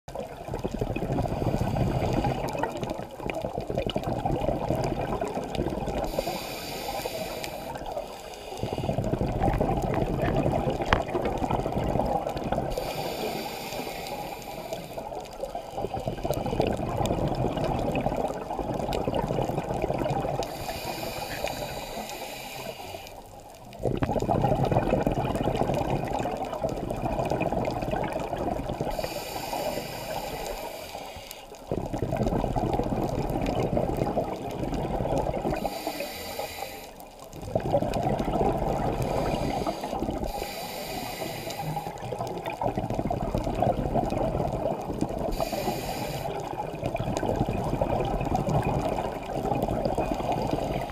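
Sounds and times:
exhaust bubbling underwater: 0.1s - 8.0s, 8.8s - 21.9s, 23.3s - 30.3s, 31.6s - 35.8s, 37.3s - 50.9s
diver breathing through regulator: 1.2s - 3.0s, 6.0s - 9.4s, 12.6s - 16.8s, 20.4s - 23.2s, 28.8s - 31.6s, 35.4s - 37.1s, 38.8s - 42.4s, 45.2s - 46.6s.

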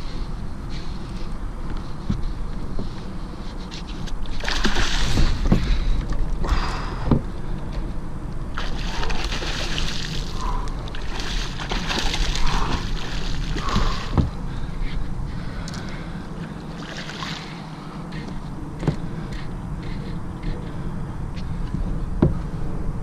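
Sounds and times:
low rumble: 0.0s - 23.0s
fish splashing in water: 4.4s - 5.6s, 8.5s - 14.3s, 16.8s - 17.6s.

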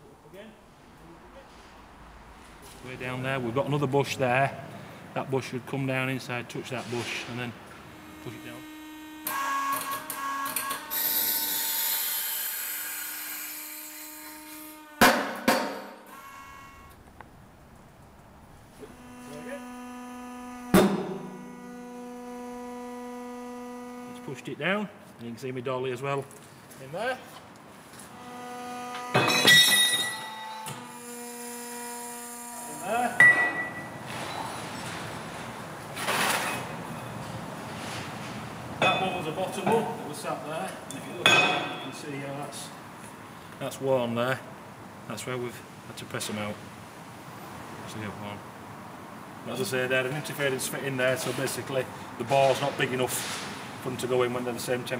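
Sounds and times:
steady background noise: 0.0s - 54.9s
hydraulic pump whining with hiss: 7.0s - 17.1s, 18.6s - 24.5s, 28.0s - 34.6s.

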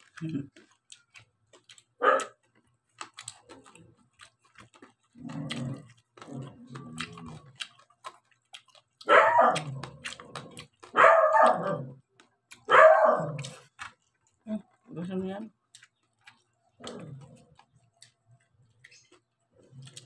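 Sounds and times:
dog barking and whining: 2.0s - 2.4s, 9.0s - 12.0s, 12.6s - 13.6s.

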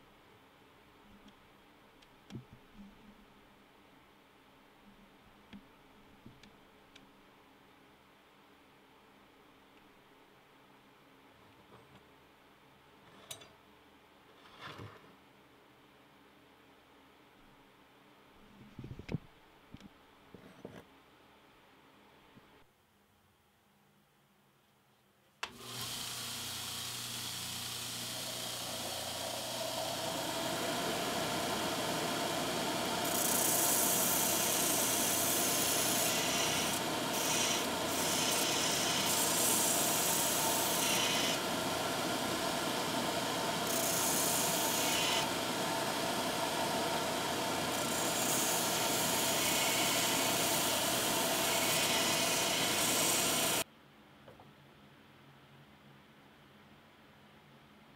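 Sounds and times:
belt grinder motor hum: 25.5s - 53.6s
steel grinding on abrasive belt: 25.6s - 53.6s.

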